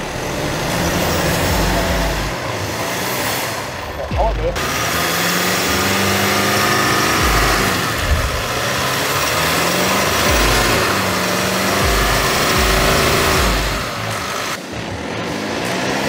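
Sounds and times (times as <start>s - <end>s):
diesel engine revving: 0.0s - 16.0s
tyres churning through mud: 0.0s - 16.0s.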